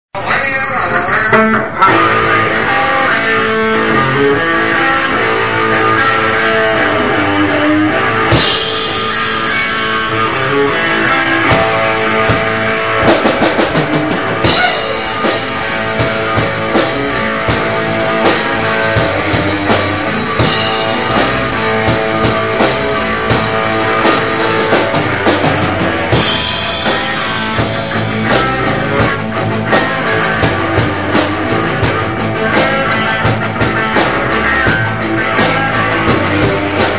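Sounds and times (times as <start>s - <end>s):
punk rock band playing: 0.2s - 36.9s.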